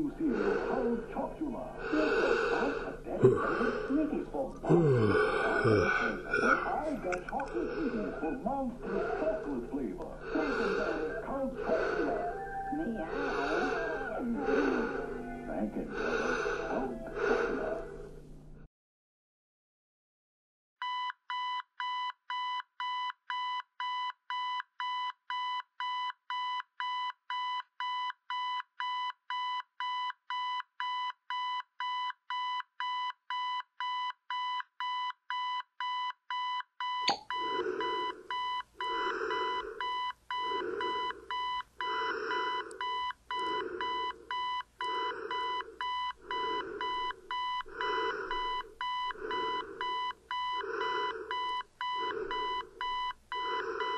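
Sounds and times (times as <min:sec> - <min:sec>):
alarm clock beeping: 0:20.8 - 0:53.9.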